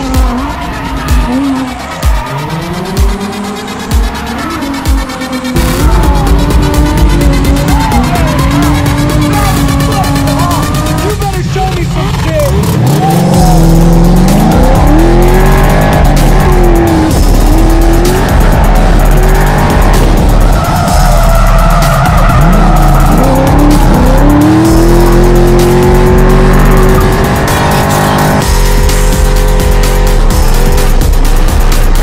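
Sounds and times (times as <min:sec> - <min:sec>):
car engine revving: 0:00.0 - 0:32.0
tyres squealing: 0:12.4 - 0:28.3.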